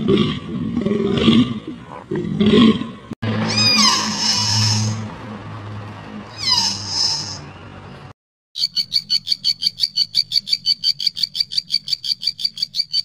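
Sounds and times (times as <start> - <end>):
high-pitched pulsing animal call: 3.3 - 5.1, 6.3 - 7.5, 8.6 - 13.0.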